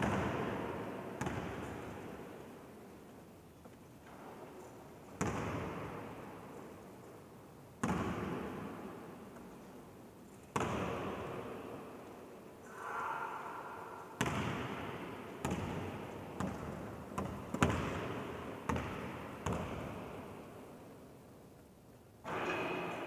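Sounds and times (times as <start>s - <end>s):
basketball bouncing in echoing hall: 0.0s - 3.2s, 4.0s - 9.6s, 10.5s - 21.1s.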